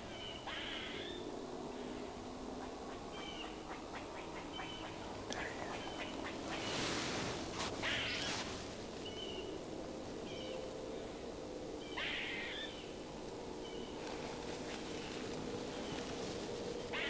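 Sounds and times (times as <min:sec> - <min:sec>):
squirrel barking and whining: 0:00.1 - 0:01.2, 0:07.8 - 0:08.4.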